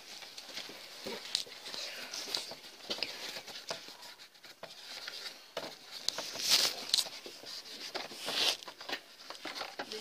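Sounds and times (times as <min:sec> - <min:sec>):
paper rubbing inside plastic box: 0:02.5 - 0:10.0.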